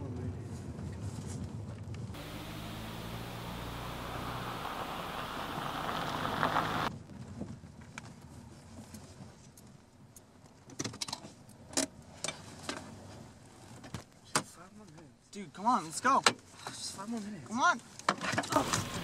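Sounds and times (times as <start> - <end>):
car driving over gravel: 2.2 - 6.9.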